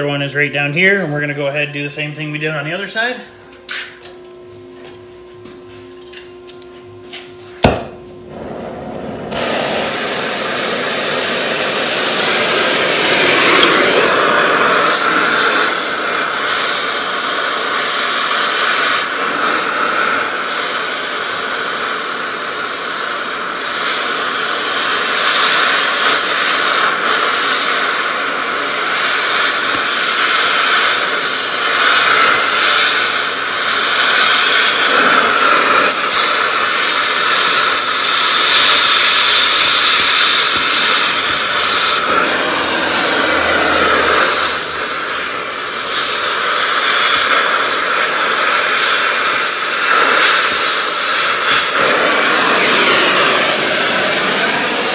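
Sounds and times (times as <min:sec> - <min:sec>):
torch igniting pop: 0:07.6 - 0:19.8, 0:24.6 - 0:43.4, 0:44.2 - 0:53.8
cutting torch hissing: 0:07.6 - 0:54.9.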